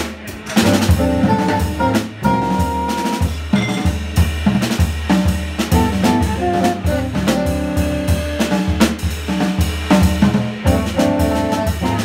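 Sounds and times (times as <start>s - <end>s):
drum kit playing: 0.0s - 12.0s
bass line: 0.5s - 4.6s, 5.2s - 9.0s, 9.9s - 12.0s
saxophone notes: 5.8s - 8.7s.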